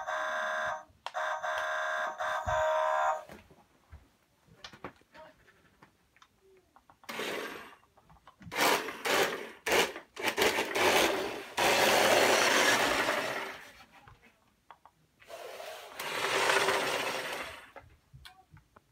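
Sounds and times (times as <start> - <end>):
toy truck electric motor: 7.0 - 7.9, 8.5 - 13.7, 15.3 - 17.8.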